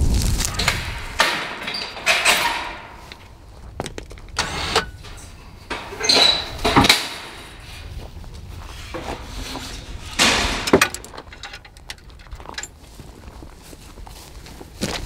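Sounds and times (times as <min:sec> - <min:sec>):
loud metal clank: 0:00.5 - 0:03.3, 0:04.4 - 0:07.8, 0:08.7 - 0:12.0
clunks scrapes and clicks: 0:00.5 - 0:12.8.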